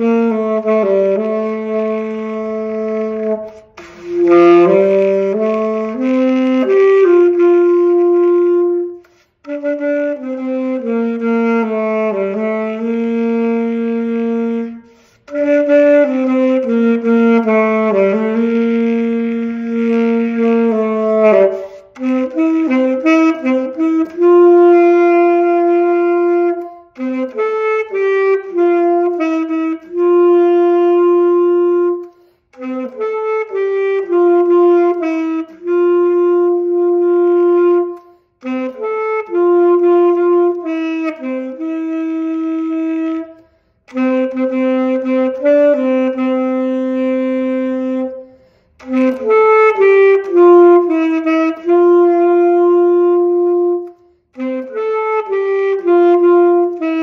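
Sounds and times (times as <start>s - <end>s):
solo saxophone melody: 0.0s - 57.0s
saxophonist breathing: 3.5s - 4.2s, 9.0s - 9.5s, 14.8s - 15.3s, 21.5s - 22.0s, 32.0s - 32.6s, 38.0s - 38.4s, 43.3s - 43.9s, 48.2s - 48.8s.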